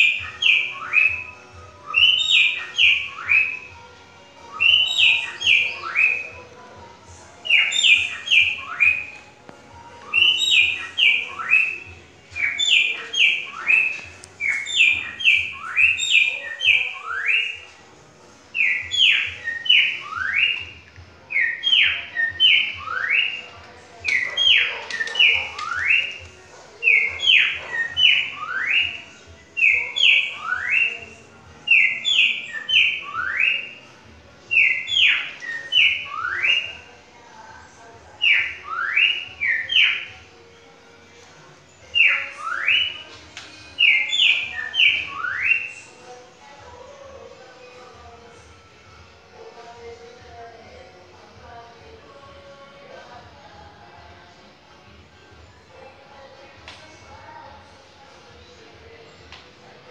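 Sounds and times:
bird whistling phrases: 0.0 - 3.8, 4.5 - 6.5, 7.4 - 9.3, 10.0 - 17.8, 18.6 - 26.2, 26.8 - 33.8, 34.5 - 36.9, 38.2 - 40.1, 41.9 - 46.0.

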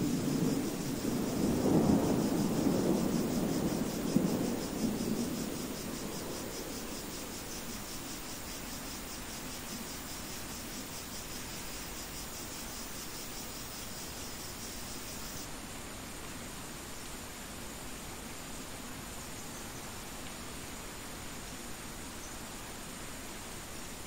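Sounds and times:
thunder rumble: 0.0 - 7.9
rain hissing: 0.0 - 19.2
crickets chirping: 0.0 - 24.0.

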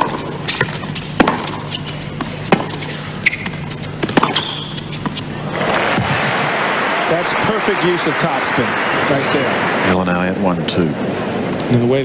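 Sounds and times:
tennis racquets hitting ball: 0.0 - 6.2
shoe squeaks: 0.2 - 5.3
crowd applause: 5.4 - 10.5.

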